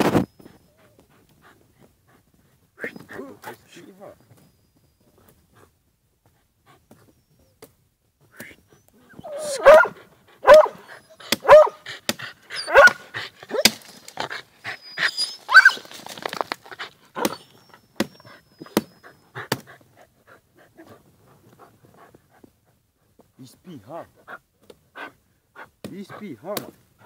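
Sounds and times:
dog barking: 0:09.2 - 0:11.8, 0:12.6 - 0:13.8, 0:15.5 - 0:15.8.

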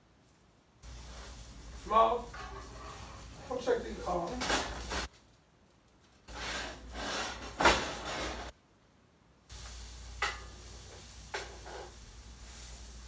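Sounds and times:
patties sizzling in a skillet: 0:00.8 - 0:05.1, 0:09.5 - 0:13.0
spatula tapping a pan: 0:10.2 - 0:10.5.

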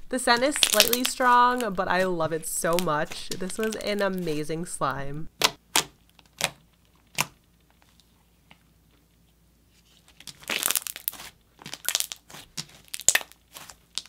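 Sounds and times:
slime squishing and crackling: 0:00.2 - 0:04.3, 0:05.3 - 0:08.2, 0:10.0 - 0:14.0.

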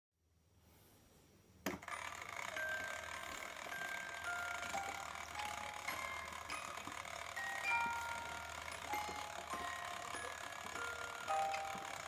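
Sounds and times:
gear and ratchet noise: 0:01.8 - 0:12.0.

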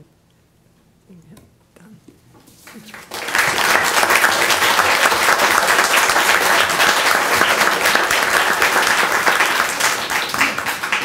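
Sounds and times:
audience applauding: 0:02.7 - 0:11.0.

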